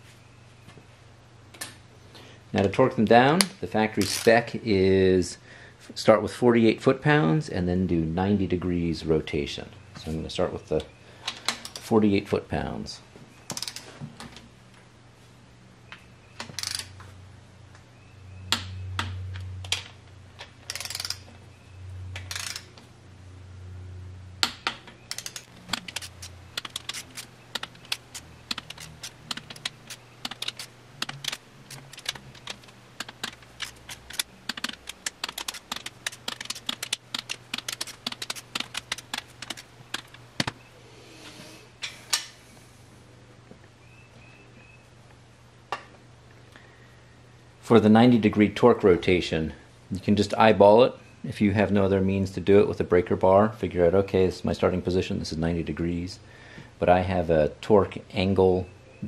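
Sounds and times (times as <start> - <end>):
ratchet torque wrench clicking: 13.5 - 13.8, 16.6 - 16.9, 20.7 - 21.2, 22.2 - 22.7, 25.1 - 40.6.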